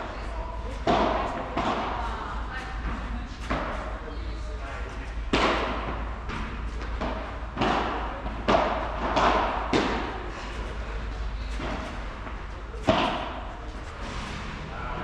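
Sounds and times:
ball bouncing off court and walls: 0.0s - 4.0s, 4.8s - 14.5s
paddle striking ball: 0.8s - 2.0s, 5.3s - 10.1s.

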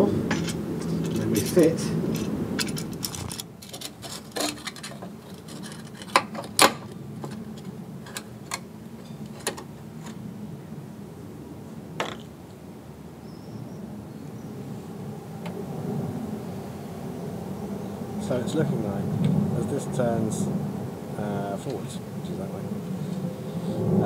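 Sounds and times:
light metal clicks and clinks: 0.3s - 10.2s.

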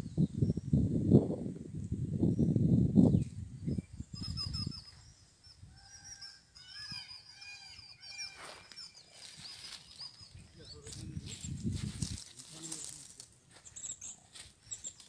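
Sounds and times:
wind rumble on microphone: 0.0s - 5.9s, 10.3s - 12.8s
birds chirping: 2.2s - 15.0s.

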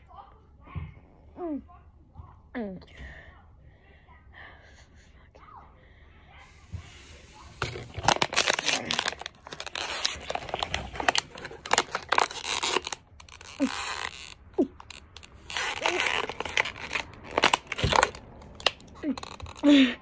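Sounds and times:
plastic bottle crinkling: 7.6s - 19.9s.

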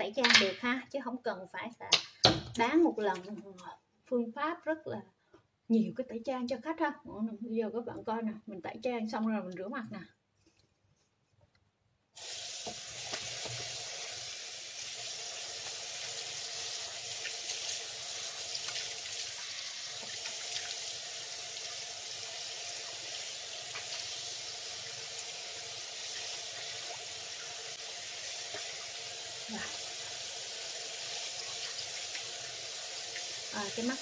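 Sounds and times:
tap water running into basin: 12.2s - 34.0s.

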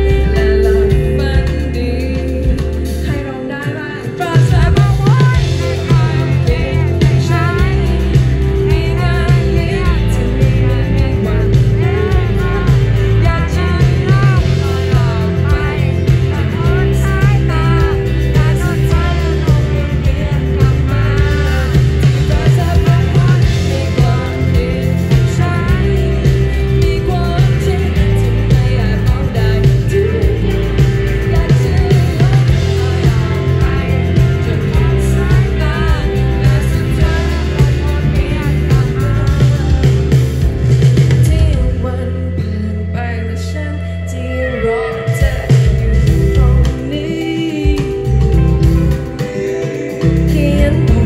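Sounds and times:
drums: 0.0s - 51.0s
electric bass: 0.0s - 51.0s
electric guitar: 0.0s - 51.0s
live pop-rock band: 0.0s - 51.0s
woman singing: 0.0s - 51.0s.

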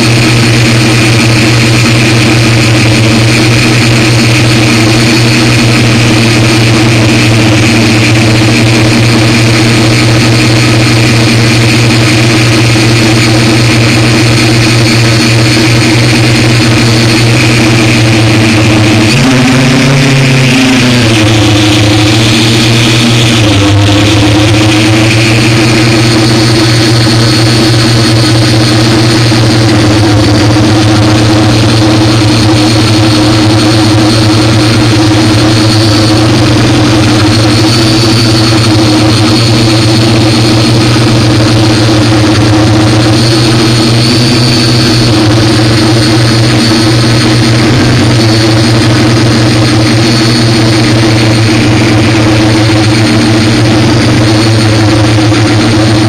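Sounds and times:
drone motors humming: 0.0s - 56.0s.

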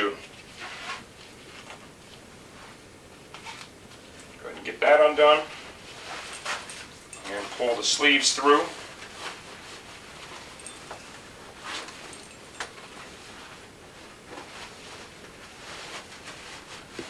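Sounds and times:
fabric and leather rustling: 5.4s - 17.0s.

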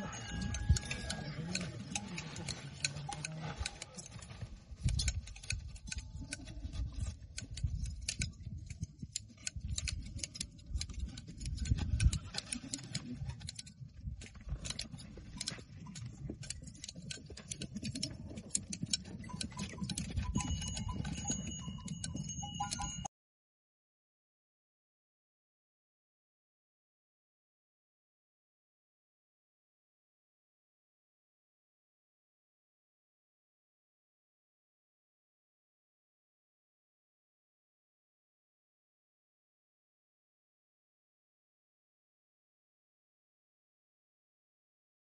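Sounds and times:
shears snipping hair: 0.0s - 23.0s.

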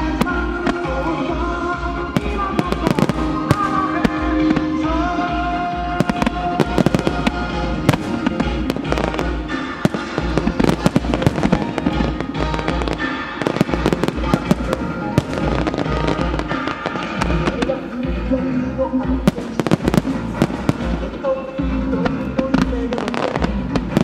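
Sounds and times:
music: 0.0s - 24.0s
firework shells bursting and crackling: 2.1s - 5.0s, 6.0s - 17.8s, 19.3s - 24.0s.

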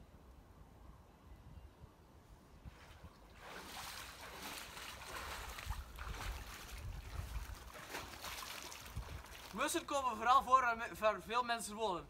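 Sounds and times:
water sloshing around legs: 2.8s - 9.6s
stream flowing: 3.3s - 10.3s.

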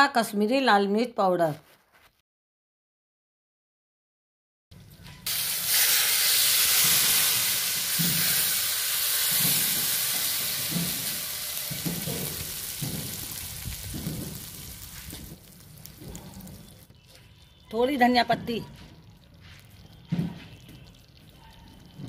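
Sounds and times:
spices sizzling in hot oil: 5.2s - 22.0s.

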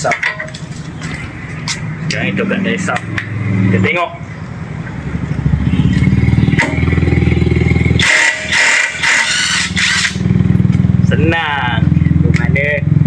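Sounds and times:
impact wrench hammering: 7.9s - 10.2s.

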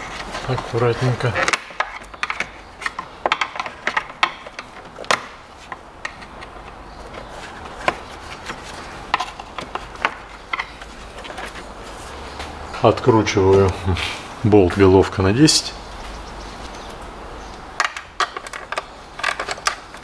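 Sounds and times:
plastic parts clicking and knocking: 0.0s - 11.6s, 17.8s - 20.0s.

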